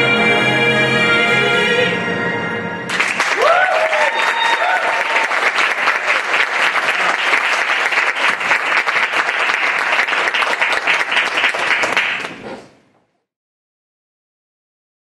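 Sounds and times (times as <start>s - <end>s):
audience applauding: 2.9s - 12.5s.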